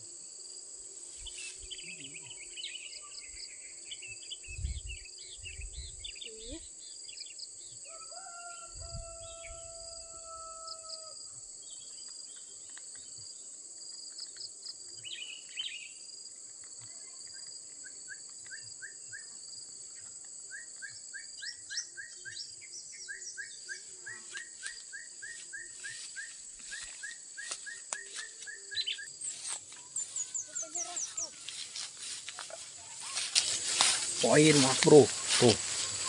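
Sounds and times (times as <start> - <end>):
birds calling: 23.0 - 36.0
high-pitched insect drone: 23.2 - 36.0.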